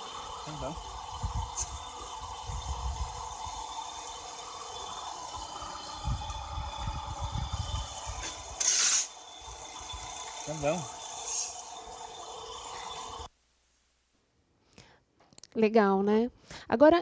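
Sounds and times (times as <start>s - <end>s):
motorized sieve humming and rumbling: 0.0s - 13.3s
short loud hiss: 8.2s - 9.2s.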